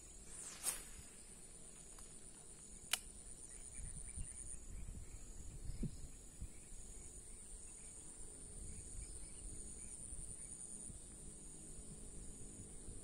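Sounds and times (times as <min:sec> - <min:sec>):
high-pitched insect chorus: 0:00.0 - 0:13.0
sharp click: 0:02.8 - 0:03.1.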